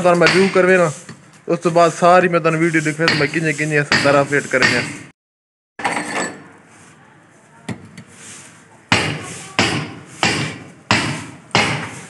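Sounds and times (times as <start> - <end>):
hammer and chisel on masonry: 0.0 - 5.2, 7.6 - 12.0.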